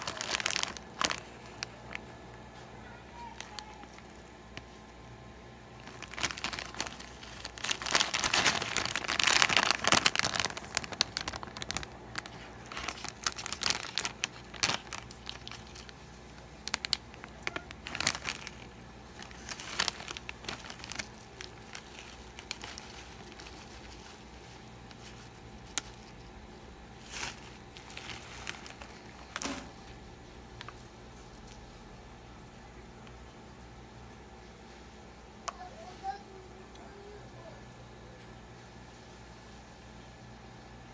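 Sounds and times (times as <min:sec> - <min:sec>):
plastic snack bag crinkling: 0:00.0 - 0:04.9, 0:05.7 - 0:31.7.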